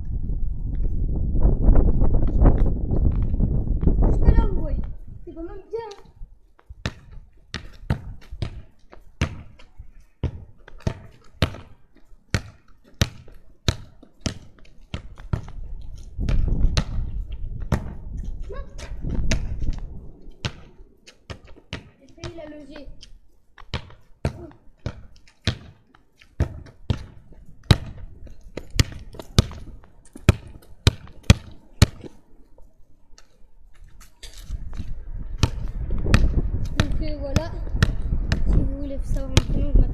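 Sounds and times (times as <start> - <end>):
soccer ball thudding against wall: 6.8 - 9.6, 16.2 - 18.0, 26.4 - 32.1, 35.4 - 38.6
football bouncing and thudding: 6.8 - 19.7, 20.4 - 20.7, 21.3 - 22.7, 23.6 - 25.8, 26.4 - 32.2, 34.8 - 39.8.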